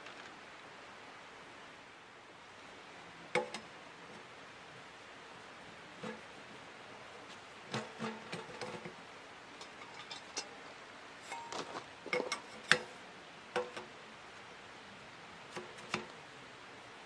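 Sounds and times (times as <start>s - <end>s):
metal stovepipe clinking and knocking: 7.7s - 9.0s.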